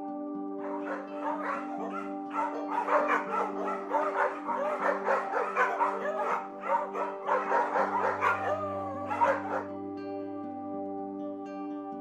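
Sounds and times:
background music with held chords: 0.0s - 12.0s
dog yapping and whining: 0.6s - 9.7s.

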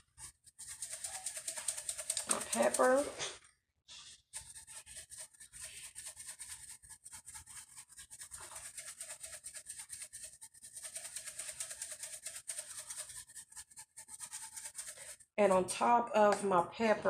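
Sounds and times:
pepper shaker rattling: 0.0s - 3.2s, 4.4s - 15.3s.

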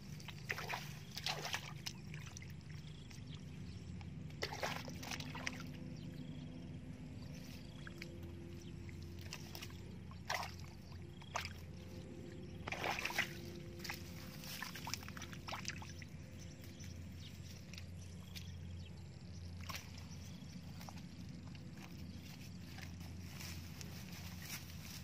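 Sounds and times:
steady low hum: 0.0s - 25.0s
hands splashing in water: 12.6s - 14.0s.

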